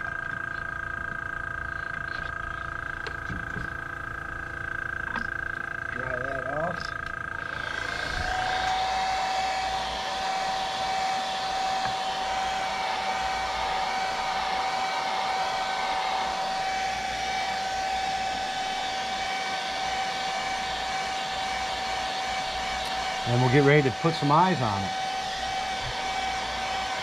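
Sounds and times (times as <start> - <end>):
hair dryer running: 7.4 - 27.0.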